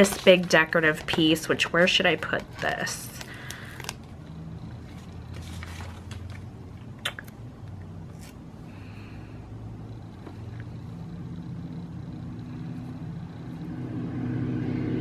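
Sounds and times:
paper sheets rustling: 0.0s - 4.1s, 4.8s - 6.5s
low steady hum: 0.0s - 15.0s.

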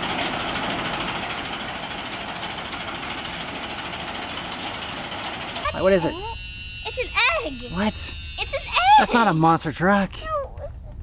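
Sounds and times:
toy motor whirring: 5.3s - 11.0s.

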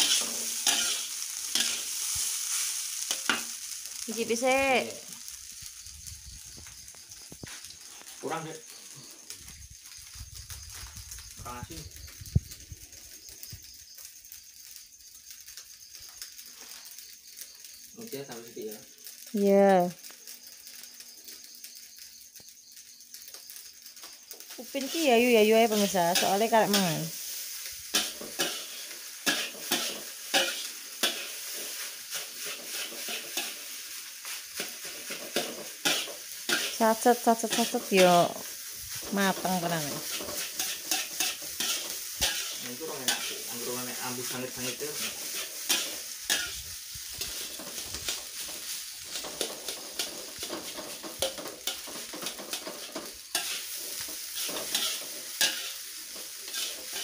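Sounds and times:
metal spatula scraping a pan: 0.0s - 4.0s, 25.7s - 57.0s
rice sizzling in a wok: 0.0s - 57.0s.

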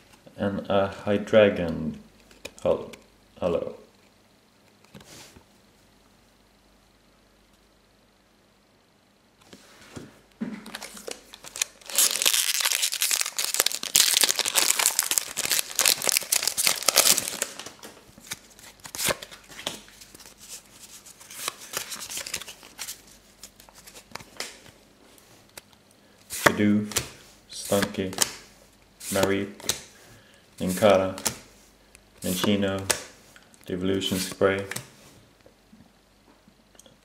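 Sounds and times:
foil pack tearing and crinkling: 10.7s - 19.5s.

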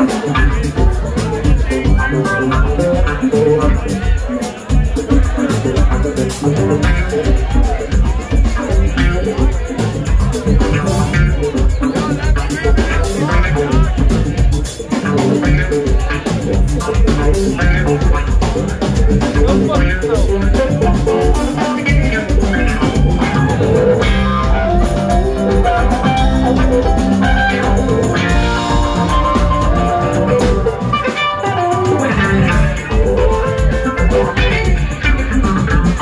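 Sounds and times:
jazz-funk band playing: 0.0s - 36.0s.

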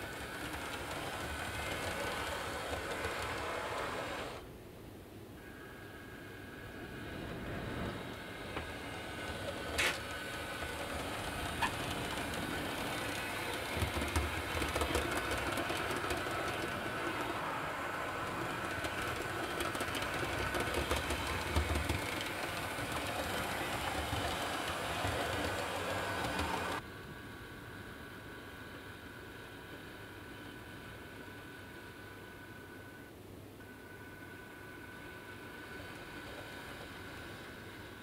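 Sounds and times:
model train motor whirring: 0.0s - 4.4s, 5.4s - 26.8s, 34.8s - 38.0s
wheels clicking over points: 0.0s - 4.4s, 8.5s - 26.8s.

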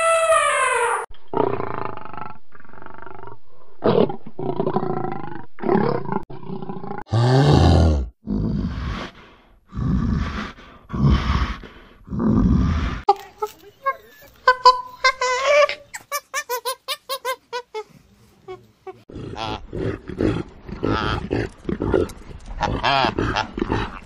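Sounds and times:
lion roar: 1.3s - 13.0s, 19.1s - 24.0s.

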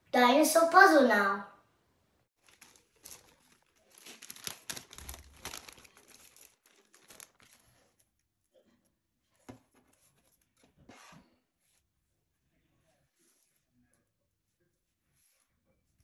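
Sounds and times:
plastic bag crinkling: 2.4s - 8.1s.

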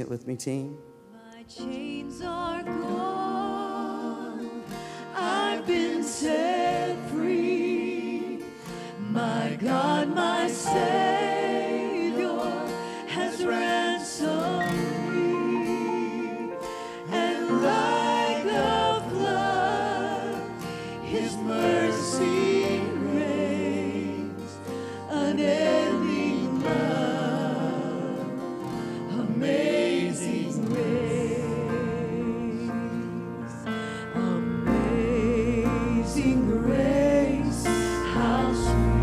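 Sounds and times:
instrumental accompaniment: 0.0s - 39.0s
choir singing gospel: 1.1s - 39.0s
low bass: 34.8s - 39.0s.

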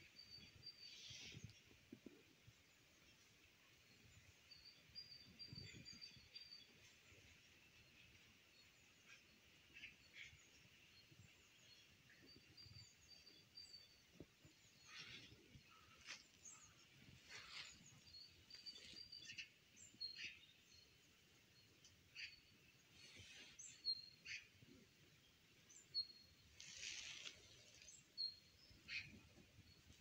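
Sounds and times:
songbirds chirping and whistling: 0.0s - 3.2s, 3.8s - 30.0s.

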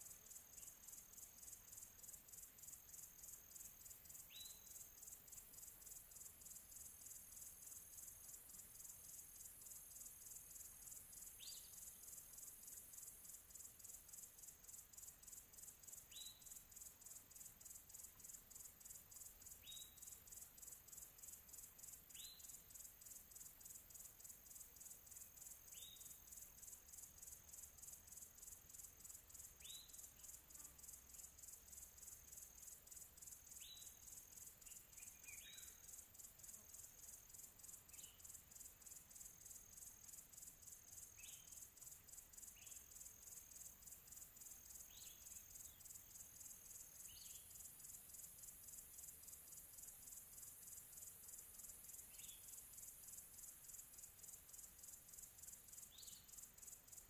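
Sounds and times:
high-pitched insect chirping: 0.0s - 57.0s.

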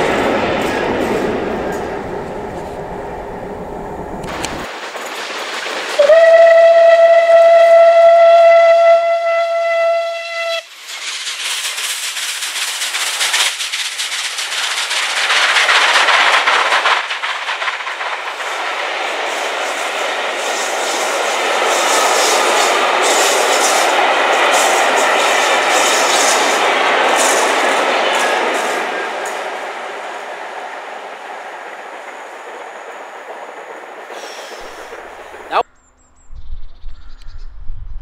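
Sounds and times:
coaches rolling on rails: 0.0s - 7.8s, 10.7s - 35.6s
locomotive passing at speed: 0.0s - 7.8s
steam whistle: 6.0s - 10.7s.

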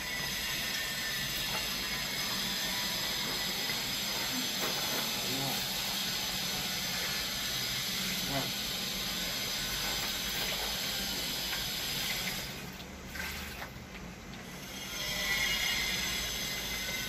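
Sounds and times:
steady hiss: 0.0s - 17.0s
water pouring onto soil: 12.0s - 13.8s.

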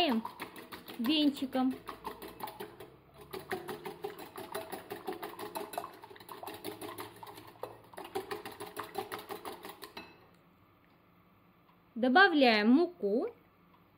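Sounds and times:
whisk clicking against glass bowl: 0.0s - 10.2s.

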